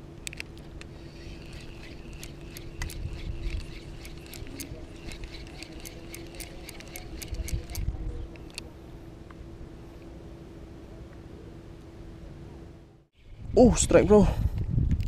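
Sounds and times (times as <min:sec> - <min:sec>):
fishing reel gear whirr: 0:00.2 - 0:08.6
sharp reel clicks: 0:00.2 - 0:08.6.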